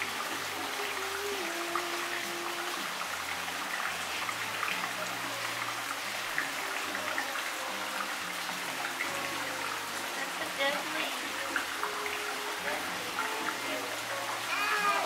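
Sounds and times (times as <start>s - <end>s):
water trickling into a pond: 0.0s - 15.0s.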